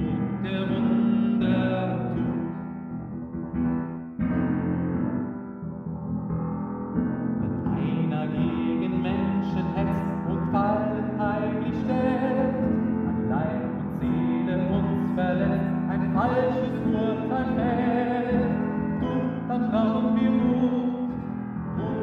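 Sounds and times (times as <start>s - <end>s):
person singing a hymn: 0.0s - 2.6s, 7.4s - 22.0s
piano chords: 0.0s - 22.0s.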